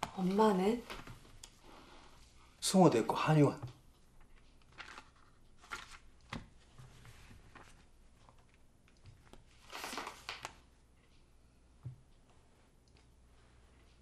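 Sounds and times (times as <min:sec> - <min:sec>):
paper rustling and sliding: 0:04.6 - 0:08.6, 0:09.5 - 0:10.6.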